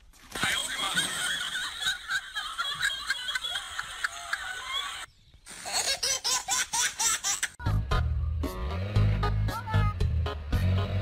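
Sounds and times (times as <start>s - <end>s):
laughter: 0.4s - 8.0s
music with heavy bass: 7.6s - 11.0s.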